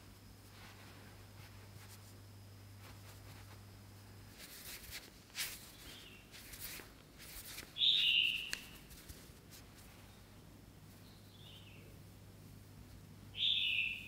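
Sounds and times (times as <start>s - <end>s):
soft rustling swishes: 0.2s - 10.2s.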